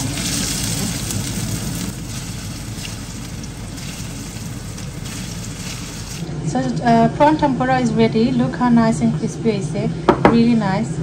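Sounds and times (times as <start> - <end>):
food deep-frying in hot oil: 0.0 - 7.4.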